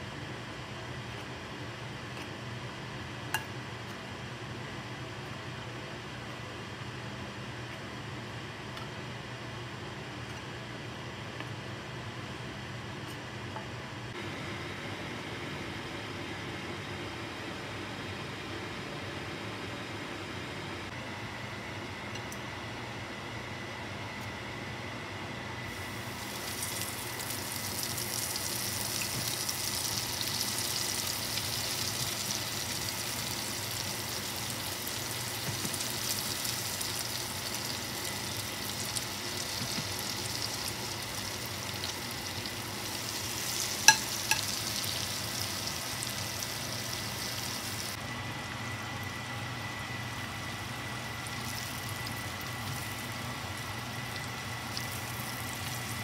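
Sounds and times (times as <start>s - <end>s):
florets sizzling in oil: 25.7s - 56.0s.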